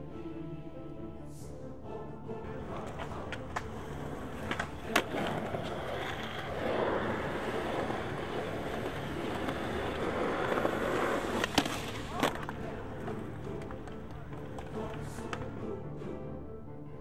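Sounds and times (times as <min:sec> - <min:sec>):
skateboard wheels rolling on concrete: 0:02.5 - 0:15.6
skateboard clacks: 0:02.6 - 0:15.5.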